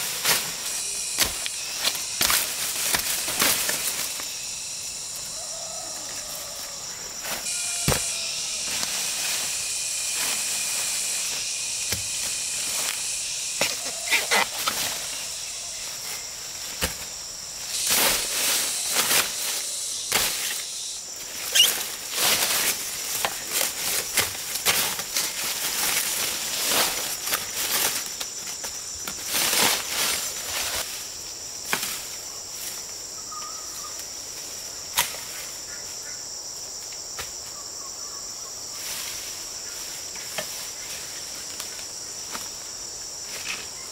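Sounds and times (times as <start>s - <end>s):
leaves rustling: 0.0s - 36.8s, 38.6s - 43.9s
insects chorus: 0.0s - 43.9s
machete chopping undergrowth: 1.1s - 4.2s, 7.3s - 9.0s, 11.3s - 13.0s, 16.7s - 19.5s, 20.1s - 20.6s, 21.4s - 26.2s.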